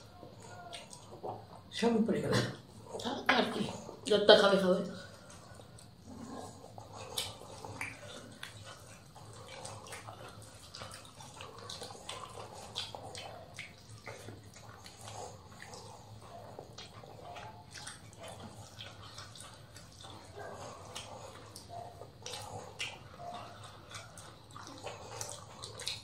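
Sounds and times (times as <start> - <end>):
wet chewing and lip smacking: 0.0 - 4.2, 4.9 - 26.0
low steady hum: 0.0 - 26.0.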